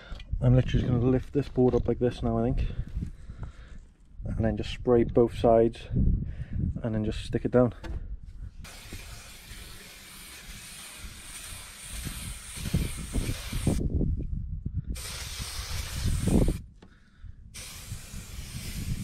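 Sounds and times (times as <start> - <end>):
aerosol can spraying: 8.6 - 13.8, 15.0 - 16.6, 17.6 - 19.0.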